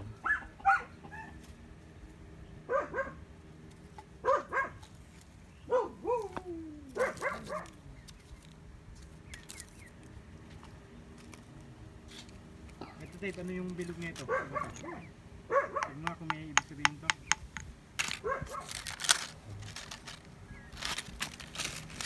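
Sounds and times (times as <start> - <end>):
dog barking: 0.2 - 1.4, 2.7 - 3.2, 4.2 - 4.8, 5.7 - 6.4, 7.0 - 7.8, 14.2 - 16.0, 18.2 - 18.7
dog whining: 5.7 - 7.6.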